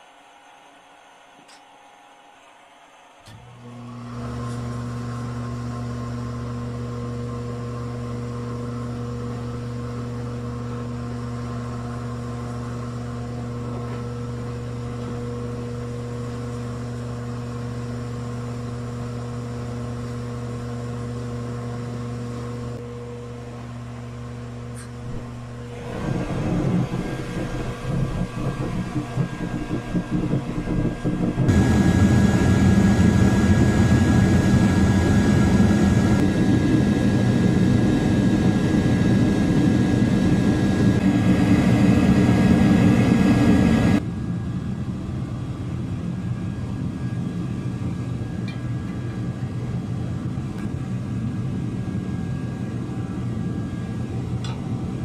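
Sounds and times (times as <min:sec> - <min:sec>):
furnace burner rushing: 0:03.3 - 0:23.0, 0:24.2 - 0:44.0
electric fan hum: 0:03.3 - 0:55.0.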